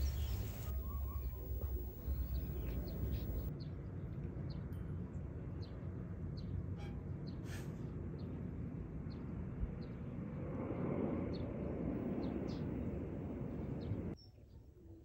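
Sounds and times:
bird chirping: 0.0s - 3.5s
steady low rumble: 0.0s - 3.5s.

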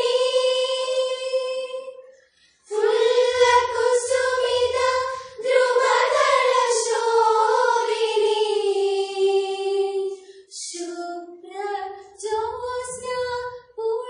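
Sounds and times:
girls singing together: 0.0s - 14.0s.

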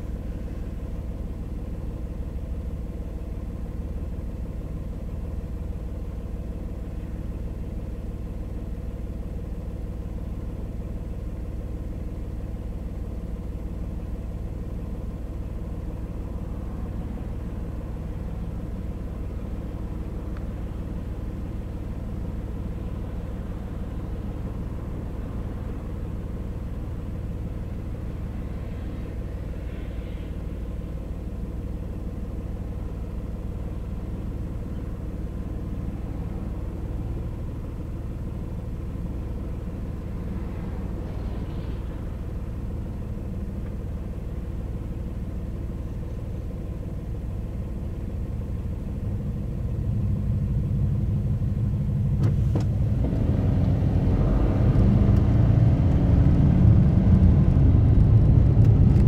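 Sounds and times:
car engine hum: 0.0s - 59.0s
tyre and road rumble: 49.2s - 59.0s.

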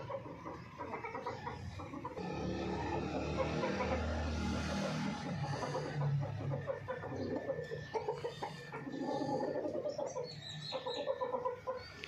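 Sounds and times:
chickens clucking: 0.0s - 12.0s.

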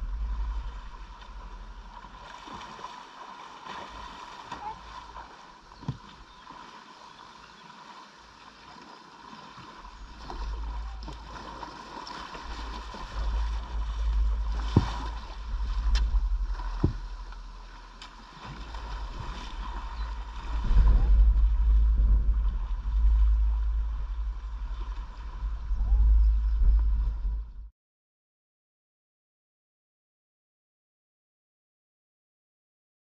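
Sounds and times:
low rumble: 0.0s - 2.4s, 9.9s - 11.5s, 12.1s - 27.7s
water sloshing around kayak: 0.0s - 27.5s.

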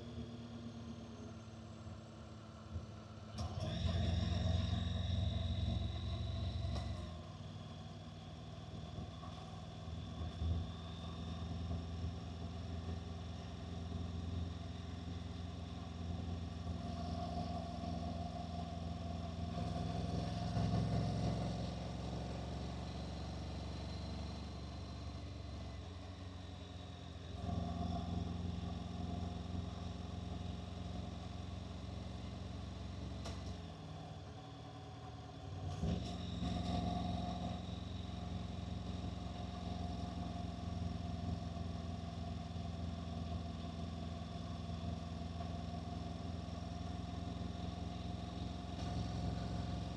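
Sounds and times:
motorcycle engine running: 7.8s - 33.7s.

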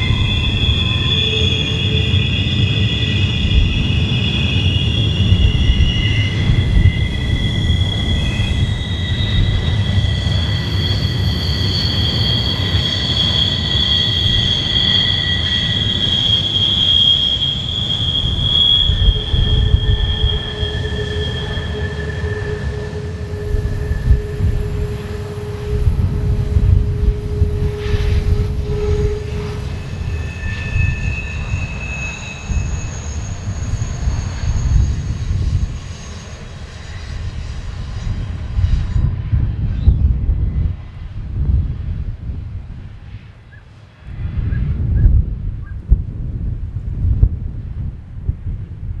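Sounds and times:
train wheels squealing on rail: 0.0s - 41.2s, 42.8s - 45.9s
low rolling rumble: 18.2s - 35.8s.

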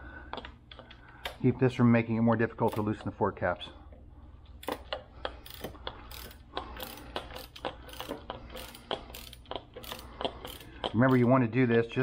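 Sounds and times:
ratchet wrench clicking: 4.6s - 11.3s.

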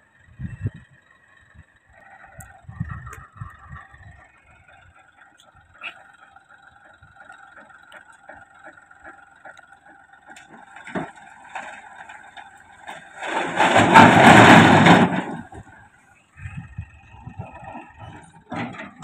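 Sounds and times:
tractor engine whining: 0.0s - 19.0s
boulder and soil crashing down: 10.4s - 15.9s.

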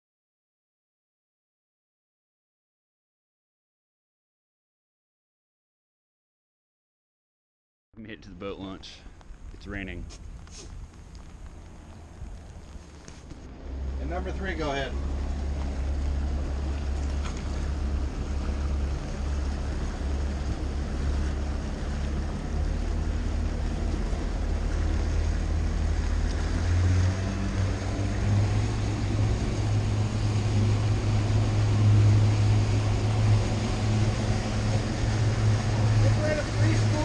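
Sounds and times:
water along boat hull: 8.0s - 37.0s
outboard motor running: 10.0s - 37.0s.

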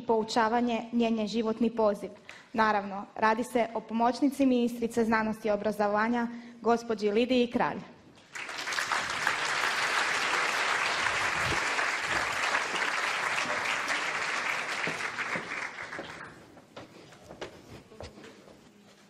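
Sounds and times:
audience applauding: 8.2s - 16.5s.

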